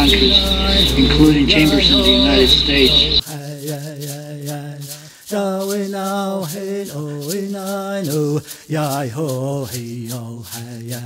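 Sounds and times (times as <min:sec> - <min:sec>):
man chanting long notes: 0:00.0 - 0:03.7.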